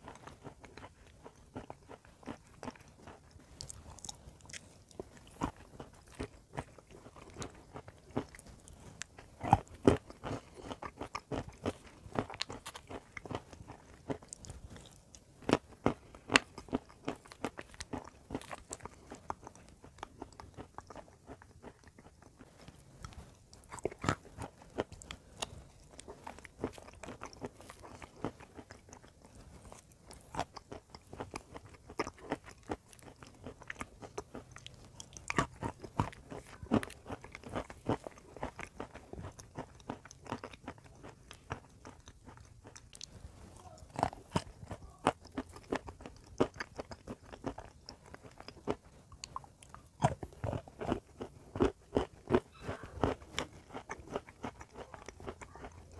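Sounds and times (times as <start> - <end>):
crunchy chewing: 0.0 - 55.9.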